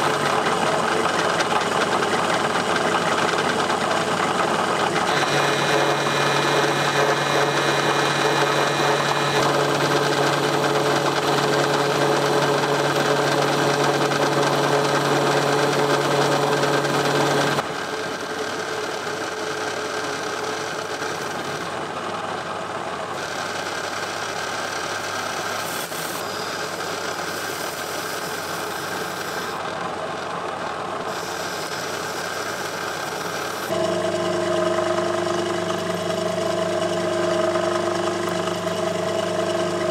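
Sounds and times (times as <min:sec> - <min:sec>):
metal lathe cutting: 0:00.0 - 0:39.9
motor humming: 0:03.0 - 0:19.0, 0:31.1 - 0:39.9.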